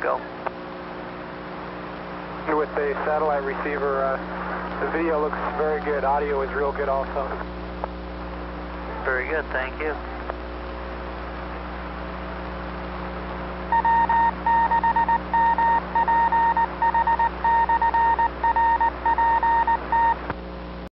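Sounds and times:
radio hum and hiss: 0.0 - 20.9
morse code tone: 13.7 - 20.2.

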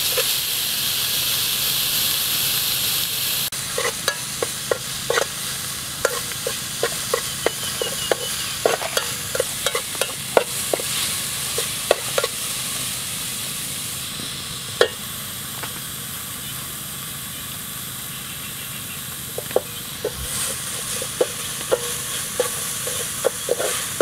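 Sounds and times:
paste sizzling in oil: 0.0 - 24.0
metal spoon clinking against pot: 6.0 - 10.8, 20.8 - 24.0.

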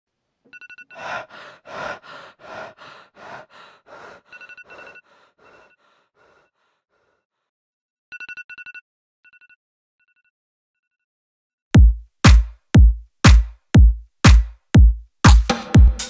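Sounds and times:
breathy rushes of noise: 1.0 - 7.1.

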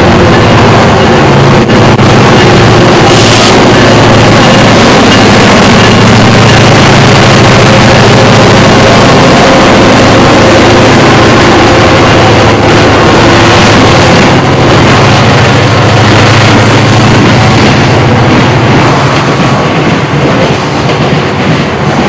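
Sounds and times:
diesel locomotive engine drone: 0.0 - 22.0
train rushing noise: 0.0 - 22.0.

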